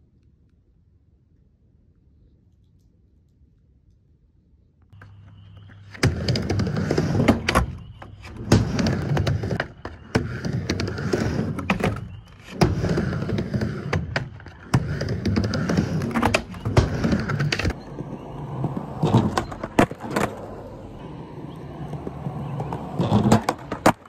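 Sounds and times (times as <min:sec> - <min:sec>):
skateboard wheels rolling on concrete: 0:04.9 - 0:24.0
skateboard clacks: 0:05.0 - 0:24.0.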